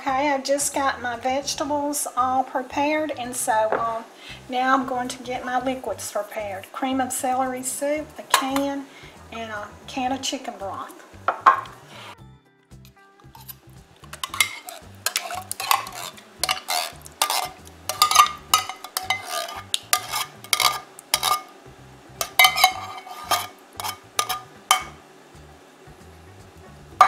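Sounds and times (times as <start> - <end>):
metal spoon scraping and clinking: 13.3 - 21.5, 22.2 - 25.0.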